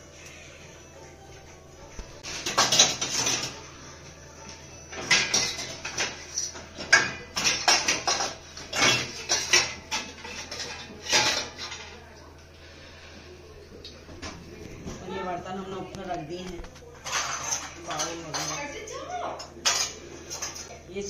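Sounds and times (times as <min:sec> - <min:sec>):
metal dishes clattering: 0:02.2 - 0:03.7, 0:04.9 - 0:12.2, 0:15.7 - 0:20.8.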